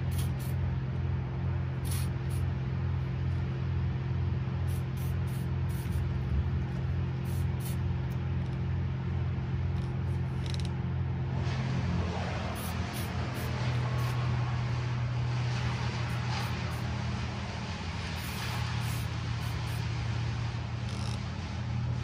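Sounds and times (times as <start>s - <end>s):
aerosol can spraying: 0.0s - 0.6s, 1.8s - 2.5s, 4.6s - 8.6s, 12.4s - 14.3s, 15.9s - 16.9s, 18.1s - 19.9s.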